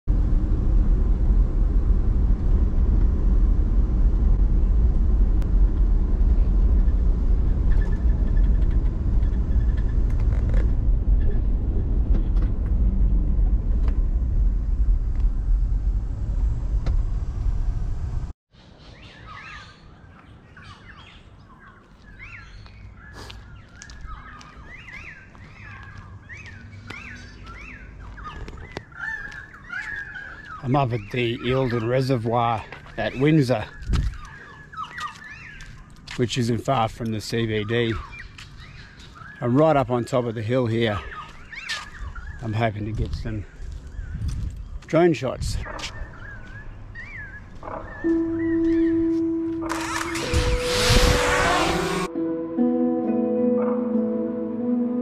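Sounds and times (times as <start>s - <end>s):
car cabin road and engine rumble: 0.1s - 18.4s
birds chirping: 6.7s - 11.5s, 18.6s - 52.1s.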